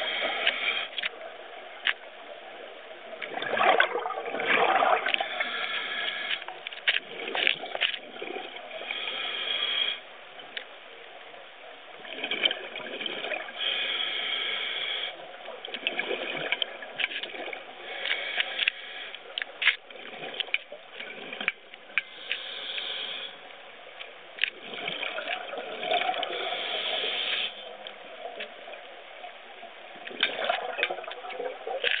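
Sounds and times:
regulator inhalation hiss: 0.0 - 1.0, 5.2 - 6.4, 8.8 - 10.0, 13.6 - 15.2, 17.8 - 19.2, 22.0 - 23.4, 26.3 - 27.6
exhaled bubbles bubbling: 3.2 - 5.8, 7.0 - 8.8, 12.0 - 13.6, 15.7 - 17.8, 24.5 - 27.0, 30.0 - 32.0.

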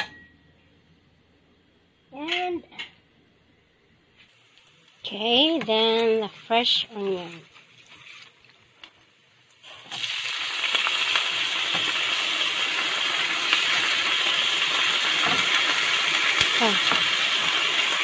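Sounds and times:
onions sizzling in oil: 9.5 - 18.0.

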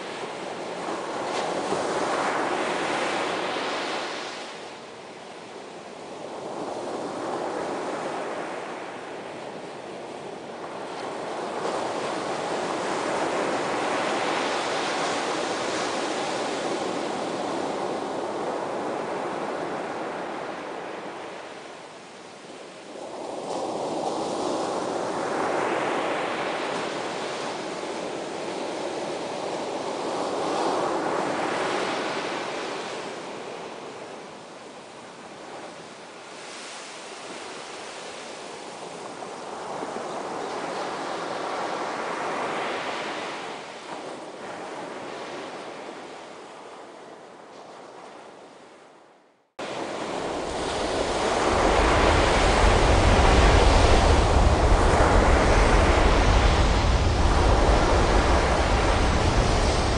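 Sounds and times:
ocean waves breaking: 49.6 - 59.9.

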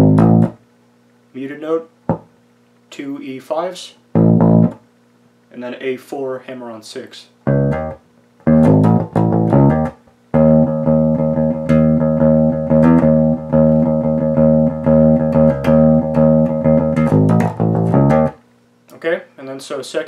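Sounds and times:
electric bass riff fingerstyle: 0.0 - 0.6, 2.1 - 2.3, 4.1 - 4.8, 7.4 - 18.4.

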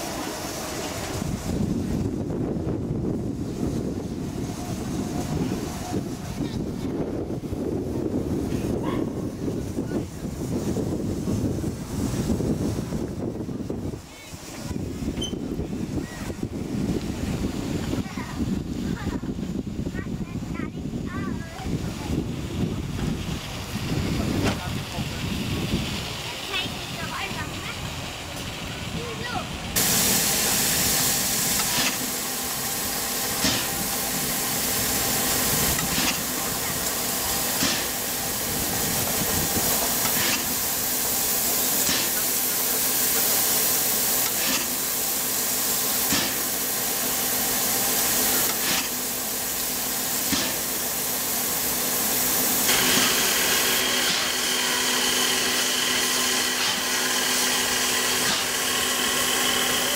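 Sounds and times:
steam locomotive hissing: 0.0 - 59.9
steady whine: 29.8 - 59.9.

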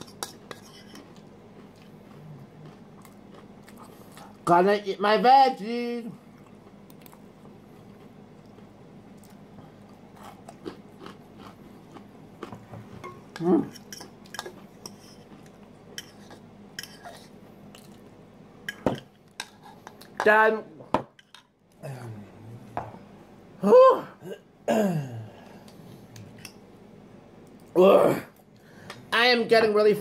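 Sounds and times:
quiet chewing: 0.0 - 4.4, 6.3 - 12.7, 13.6 - 18.1.

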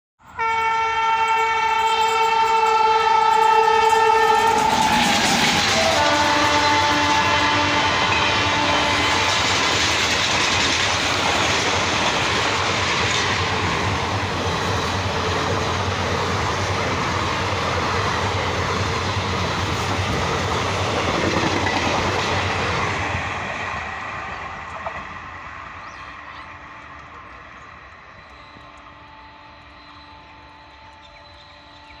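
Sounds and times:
train rumbling past: 0.2 - 32.0
locomotive horn: 0.3 - 9.5, 28.2 - 32.0.

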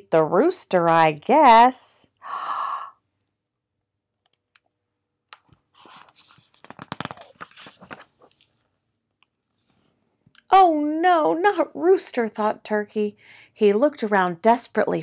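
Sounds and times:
book pages turning: 5.3 - 8.7.

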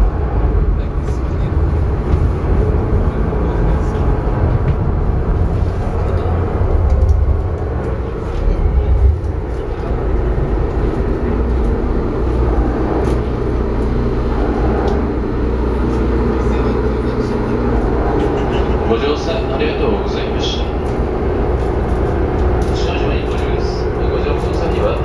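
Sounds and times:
boat engines droning: 0.0 - 25.0.

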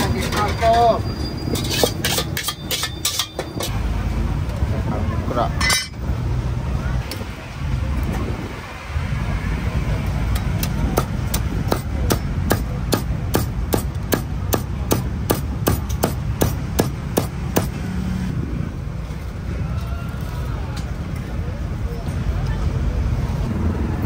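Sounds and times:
kitchen utensil striking: 1.6 - 3.7, 5.6 - 6.0.

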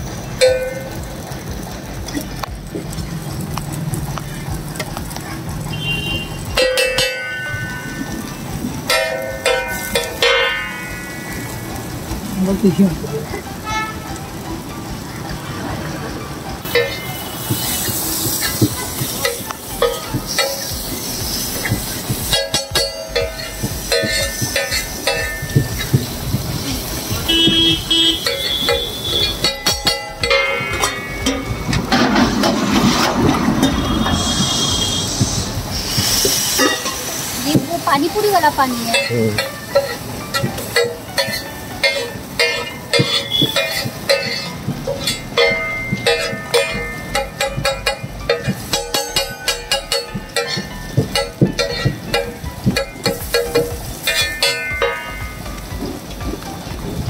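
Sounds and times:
spatula clanking on iron griddle: 8.9 - 11.4, 16.7 - 34.6, 35.9 - 55.4.

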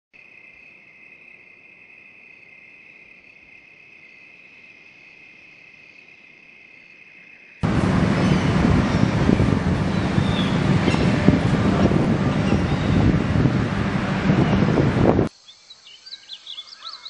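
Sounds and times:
crickets chirring: 0.2 - 13.2, 15.3 - 17.0
loud rushing noise: 7.6 - 15.3.

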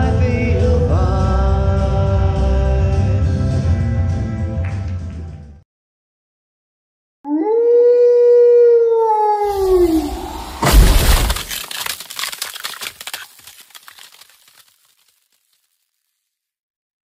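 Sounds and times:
howl: 7.3 - 10.5
glass breaking with thud: 9.9 - 15.3
glass fragments clattering: 10.6 - 16.2.

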